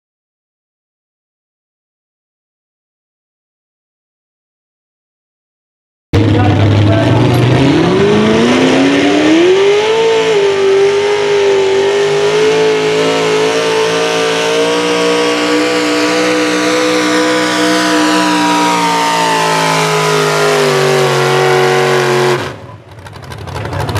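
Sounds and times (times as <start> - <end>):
tractor engine revving under load: 6.2 - 23.9.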